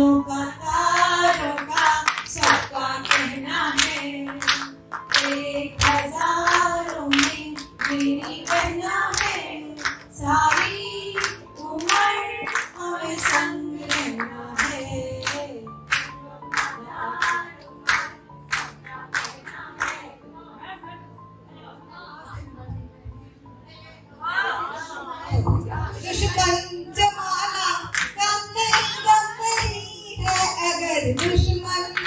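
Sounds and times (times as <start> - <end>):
women singing together: 0.0 - 22.8, 23.8 - 32.0
people clapping: 0.9 - 20.1, 27.8 - 32.0.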